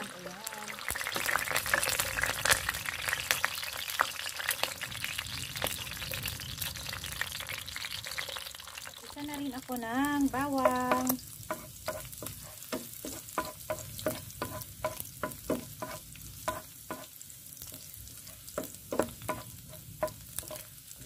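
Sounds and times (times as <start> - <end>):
garlic sizzling in oil: 0.0 - 21.0
utensil scraping pan: 10.3 - 21.0.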